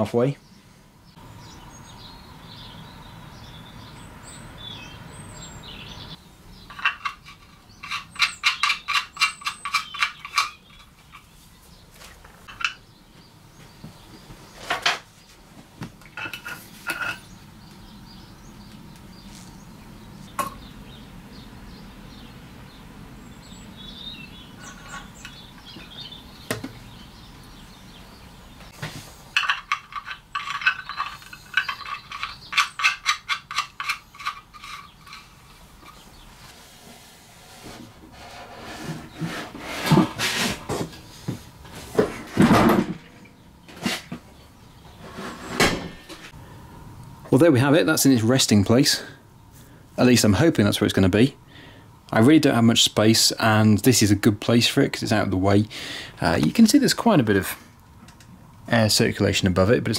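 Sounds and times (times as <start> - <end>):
metal clinks and knocks: 6.7 - 11.3, 29.4 - 36.2.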